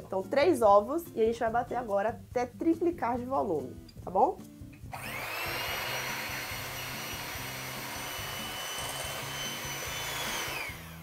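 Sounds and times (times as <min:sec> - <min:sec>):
electric hand mixer whipping eggs: 0:04.9 - 0:11.0.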